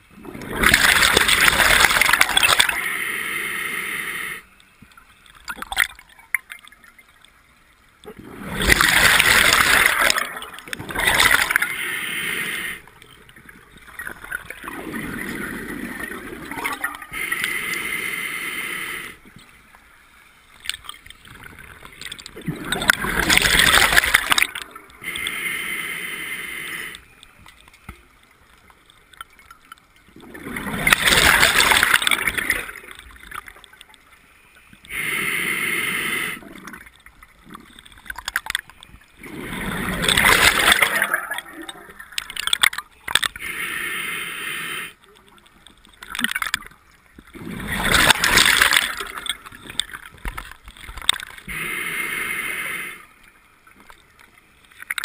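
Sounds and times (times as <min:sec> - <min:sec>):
exhaust bubbles gurgling: 0:00.0 - 0:02.8, 0:08.0 - 0:11.7, 0:21.4 - 0:24.8, 0:30.2 - 0:33.3, 0:39.2 - 0:42.6, 0:47.3 - 0:50.2
regulator inhale hiss: 0:02.7 - 0:04.6, 0:11.4 - 0:13.0, 0:17.1 - 0:19.3, 0:25.0 - 0:27.2, 0:34.8 - 0:36.6, 0:43.4 - 0:45.1, 0:51.4 - 0:53.2.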